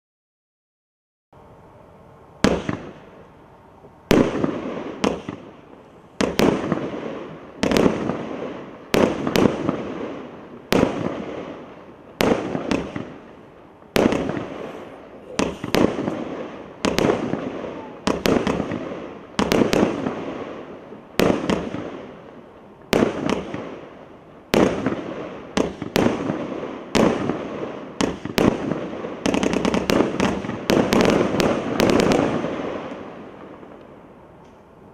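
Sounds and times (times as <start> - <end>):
fireworks bangs: 2.4 - 3.4, 4.0 - 34.8.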